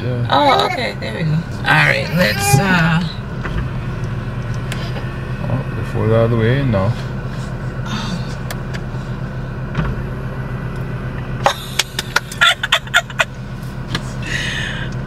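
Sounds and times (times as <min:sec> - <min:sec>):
car engine idling: 0:00.0 - 0:15.0
woman laughing: 0:02.1 - 0:02.7, 0:11.4 - 0:13.4.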